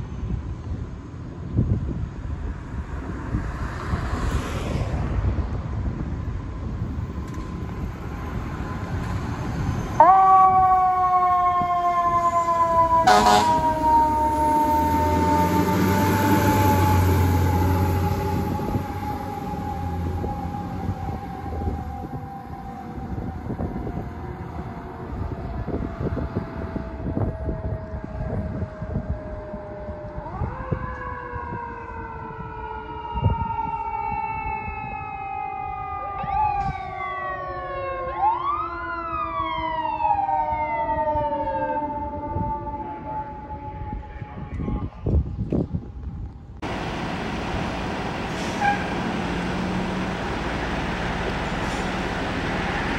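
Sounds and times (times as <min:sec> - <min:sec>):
wailing siren sweeps: 0:07.8 - 0:45.4, 0:46.6 - 0:52.9
falling siren tone: 0:08.0 - 0:45.4, 0:46.6 - 0:52.9
truck engine rumble: 0:12.7 - 0:26.9, 0:46.6 - 0:52.9.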